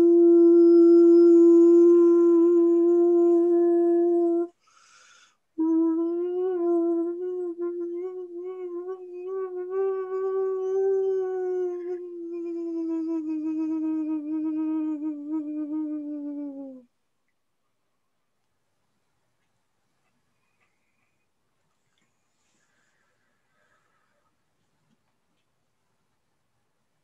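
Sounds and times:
person humming long note: 0.0 - 4.6, 5.6 - 16.9
person breathing in: 4.6 - 5.4.

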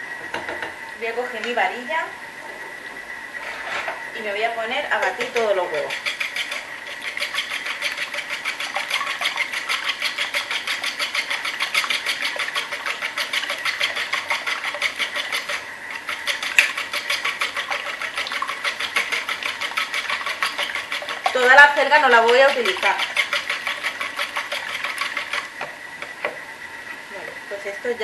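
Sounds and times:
whisk beating eggs in bowl: 4.9 - 26.4.

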